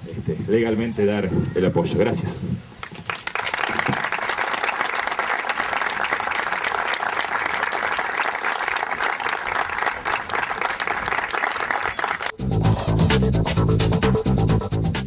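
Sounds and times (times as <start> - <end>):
audience applauding: 2.8 - 12.4
electronic music with beat: 12.3 - 15.0.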